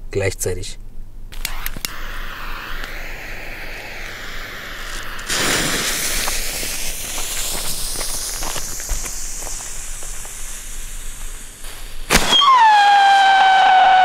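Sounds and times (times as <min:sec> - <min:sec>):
firework howling hiss: 0:01.3 - 0:14.0
firework igniting with crackles: 0:01.3 - 0:14.0
loud rushing hiss: 0:01.3 - 0:14.0.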